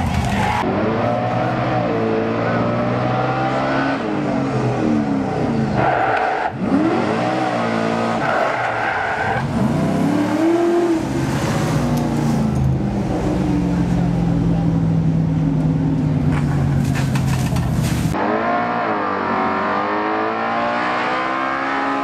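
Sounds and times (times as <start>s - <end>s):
engine revving hard: 5.8s - 11.9s, 18.2s - 22.0s.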